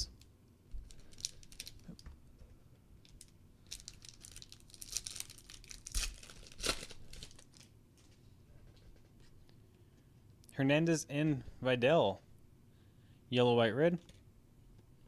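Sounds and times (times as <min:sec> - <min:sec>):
foil pack tearing and crinkling: 0:01.0 - 0:02.0, 0:03.2 - 0:07.7.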